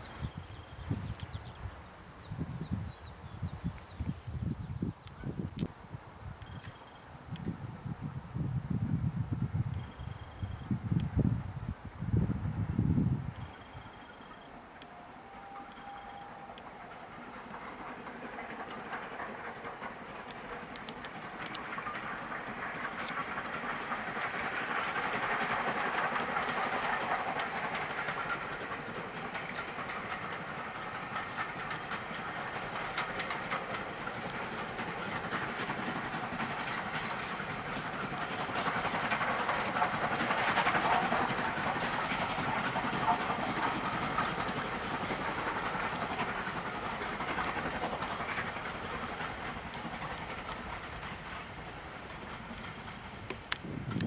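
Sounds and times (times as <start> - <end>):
steam locomotive exhaust: 6.4 - 54.0
train coaches clacking on rails: 13.3 - 54.0.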